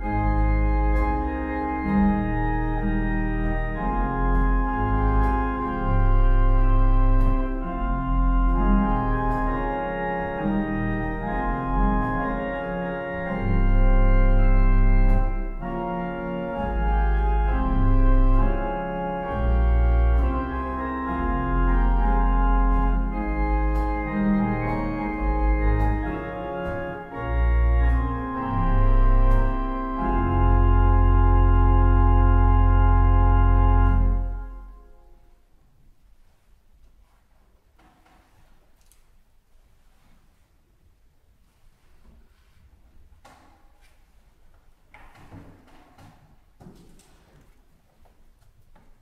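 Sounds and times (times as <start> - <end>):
deep organ pedal bass notes: 0.0 - 35.2
pipe organ chords: 0.0 - 35.3.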